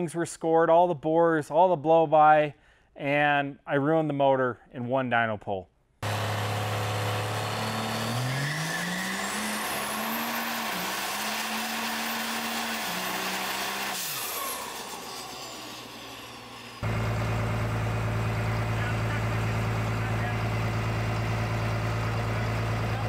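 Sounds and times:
diesel engine revving: 6.0s - 23.0s
turbocharger whine: 6.0s - 23.0s.

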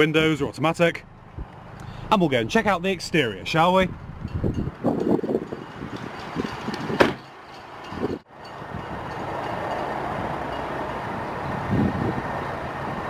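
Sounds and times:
car door shutting: 6.8s - 7.2s.

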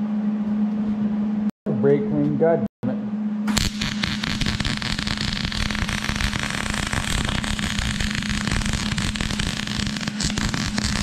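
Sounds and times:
steady low hum: 0.0s - 11.0s
welder arc crackling: 3.5s - 11.0s.

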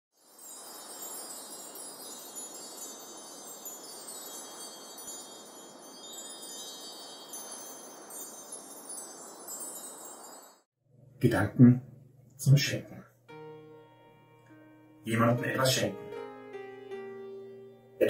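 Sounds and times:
chimes tinkling: 0.2s - 10.7s.

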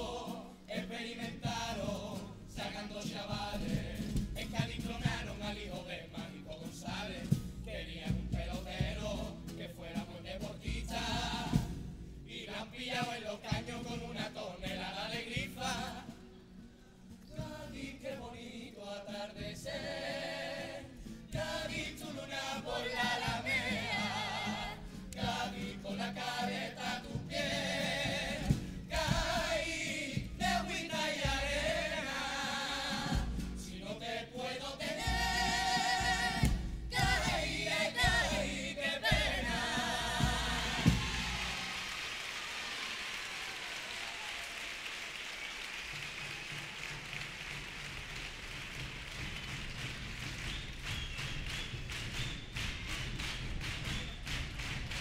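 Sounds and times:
choir singing in harmony: 0.0s - 16.4s, 17.3s - 42.0s
guitar accompaniment: 0.0s - 41.9s.

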